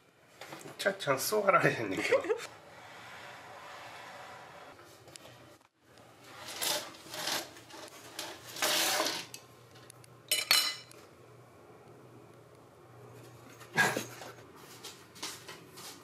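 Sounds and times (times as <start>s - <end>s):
metal cutlery clinking on wood: 10.3s - 10.9s.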